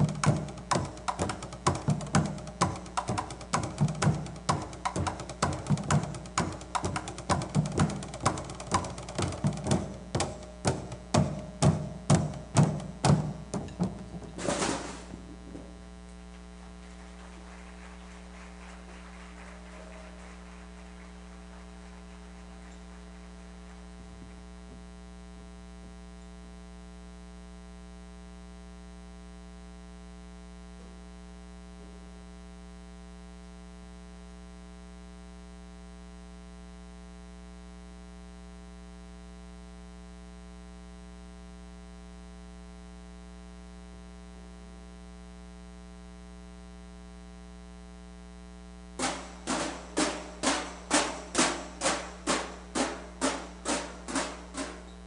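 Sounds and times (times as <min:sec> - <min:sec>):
sharp percussive stomps: 0:00.0 - 0:15.5, 0:49.0 - 0:55.0
electrical mains hum: 0:00.0 - 0:55.0.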